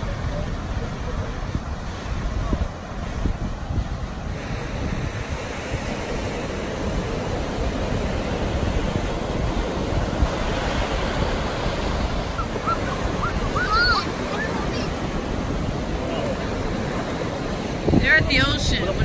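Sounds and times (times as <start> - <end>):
ocean surf breaking on beach: 0.0 - 19.0
wind rumbling on microphone: 0.0 - 19.0.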